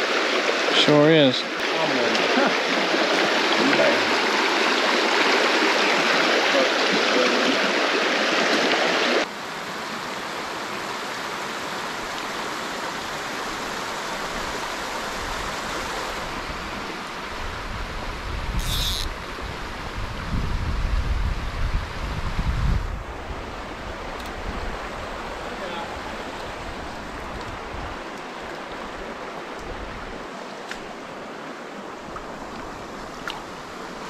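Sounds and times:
creek rushing over rocks: 0:00.0 - 0:17.6, 0:23.0 - 0:34.0
wind rumble on microphone: 0:15.1 - 0:25.4, 0:26.0 - 0:28.1.

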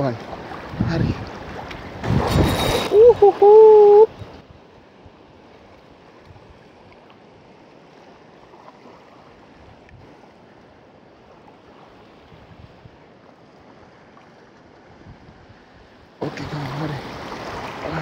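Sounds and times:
choppy river water: 0:00.0 - 0:18.0
wind on microphone: 0:00.4 - 0:05.2, 0:12.1 - 0:13.0, 0:14.8 - 0:16.0.

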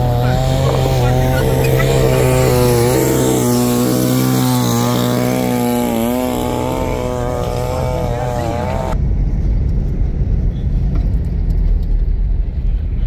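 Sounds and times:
chainsaw cutting log: 0:00.0 - 0:09.0.

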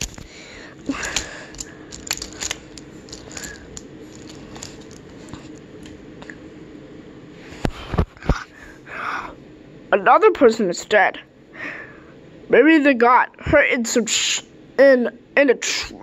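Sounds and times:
wooden toy trains clicking: 0:01.0 - 0:05.0.

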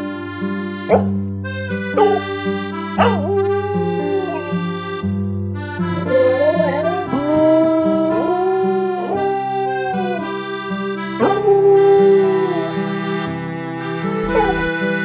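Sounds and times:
instrumental music with bass: 0:00.0 - 0:15.0
dog howling: 0:00.9 - 0:01.2, 0:02.0 - 0:02.4, 0:03.0 - 0:05.0, 0:06.0 - 0:10.5, 0:11.2 - 0:13.3, 0:14.2 - 0:15.0.

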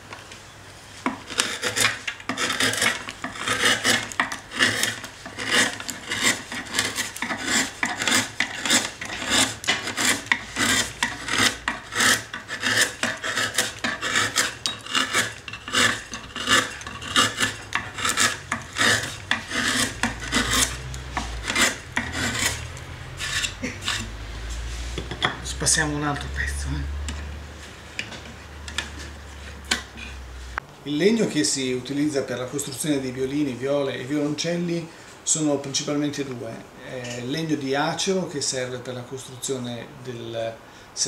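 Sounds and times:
hand tool rasping wood: 0:01.1 - 0:24.2.

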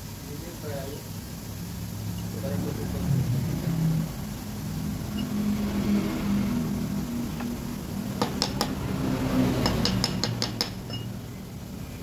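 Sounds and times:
steady low hum: 0:01.0 - 0:09.4.

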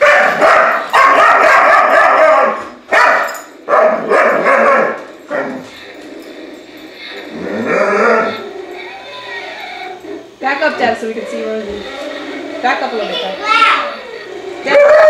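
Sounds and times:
toy dinosaur electronic roars: 0:05.5 - 0:10.3, 0:11.7 - 0:13.0, 0:13.8 - 0:15.0.

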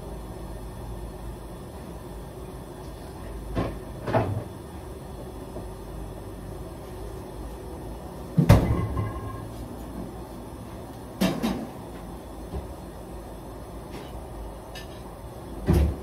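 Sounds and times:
clunk with brief ring: 0:08.6 - 0:09.5.

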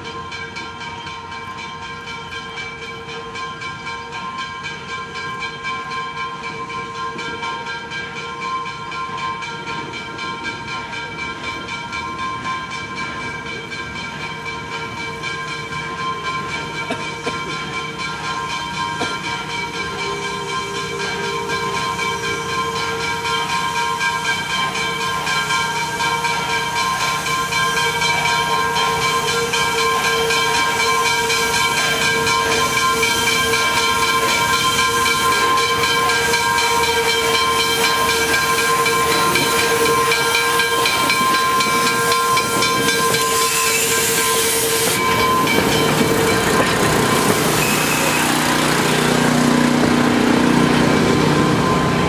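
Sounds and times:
train coaches rolling by: 0:00.0 - 0:52.0
steam whistle multi-note tone: 0:20.1 - 0:52.0
steam hissing: 0:20.4 - 0:52.0.

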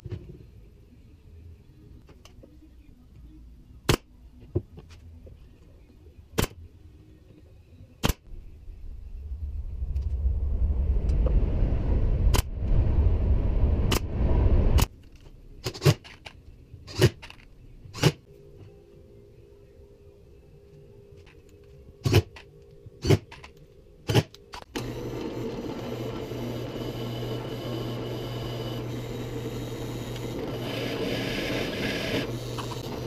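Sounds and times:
steady machine noise: 0:24.8 - 0:33.0.

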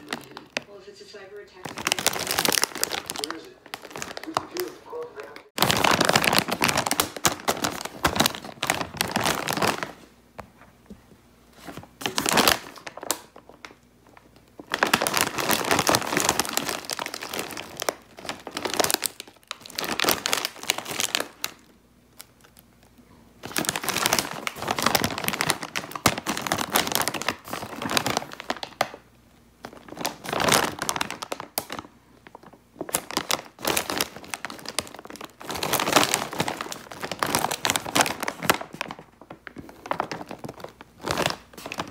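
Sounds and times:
plastic snack bag crinkling: 0:00.0 - 0:10.6, 0:11.6 - 0:41.9.

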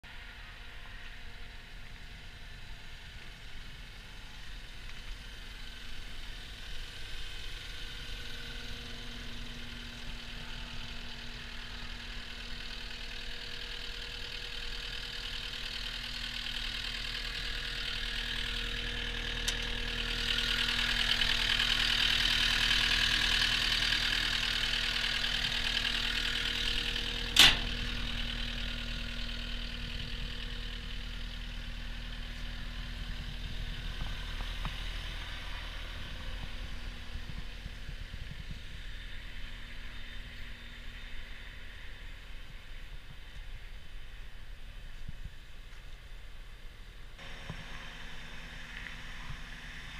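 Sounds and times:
diesel engine idling: 0:00.0 - 0:49.9
small click: 0:27.4 - 0:27.7.

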